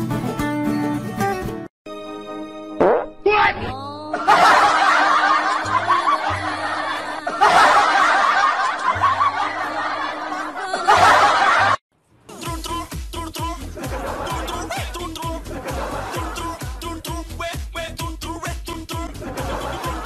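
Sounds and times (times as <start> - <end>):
background music: 0.0 - 20.0
people snickering and chuckling: 4.2 - 11.8, 13.6 - 16.9, 19.1 - 20.0.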